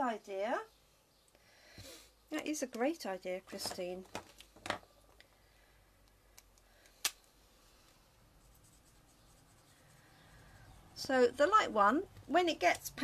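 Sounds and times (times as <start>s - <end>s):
marker scratching on card: 8.4s - 10.8s.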